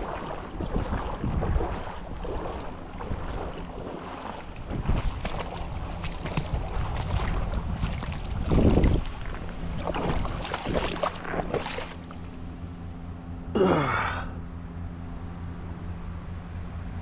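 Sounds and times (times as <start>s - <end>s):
wind rumbling on microphone: 0.0s - 12.4s
creek water splashing: 0.0s - 12.6s.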